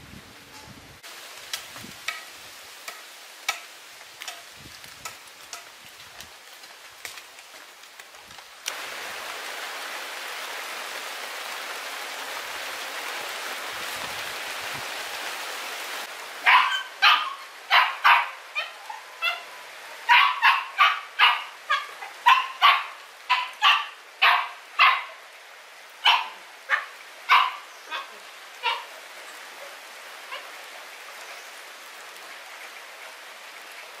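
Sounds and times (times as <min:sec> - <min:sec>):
steady hiss: 0:00.0 - 0:17.8
puppy yapping: 0:16.4 - 0:19.4, 0:20.1 - 0:25.1, 0:26.1 - 0:28.8.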